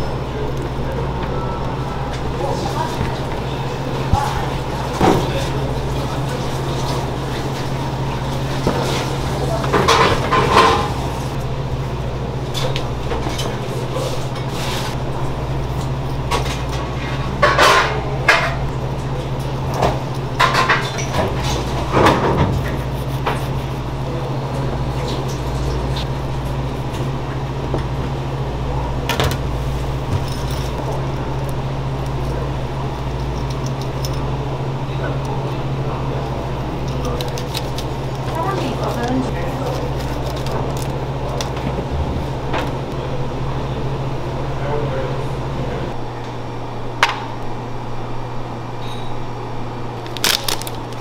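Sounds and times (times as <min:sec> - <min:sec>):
low machine hum: 0:00.0 - 0:51.0.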